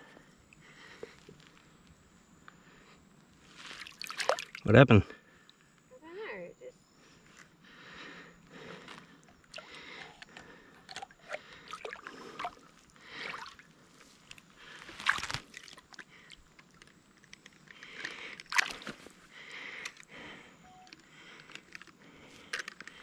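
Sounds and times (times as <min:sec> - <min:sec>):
water sloshing and splashing: 0:03.6 - 0:04.7, 0:09.5 - 0:16.9, 0:18.4 - 0:19.2
loud fish splash: 0:03.9 - 0:04.6.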